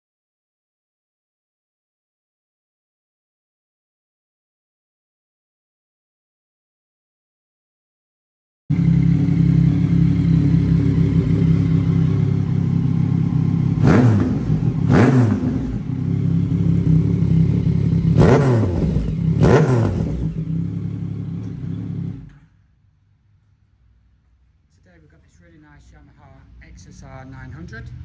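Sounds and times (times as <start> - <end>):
motorcycle engine idling and revving: 8.7 - 22.6.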